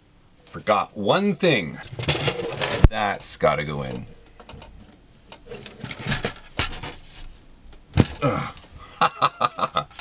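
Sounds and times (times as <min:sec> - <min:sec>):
plastic parts rustling and knocking: 0:01.9 - 0:03.0, 0:03.9 - 0:07.3, 0:07.9 - 0:08.2.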